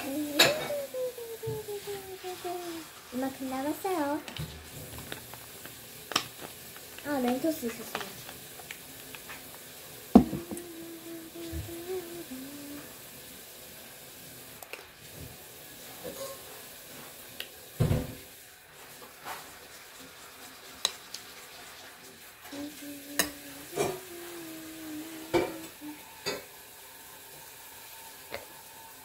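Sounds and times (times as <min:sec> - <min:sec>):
person humming: 0:00.0 - 0:02.9, 0:10.2 - 0:13.0, 0:22.5 - 0:26.1
knock: 0:10.2 - 0:10.6.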